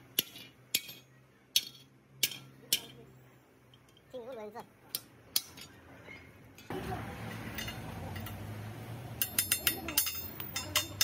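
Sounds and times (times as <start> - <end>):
sharp metallic clinks: 7.3 - 8.5, 9.2 - 11.0.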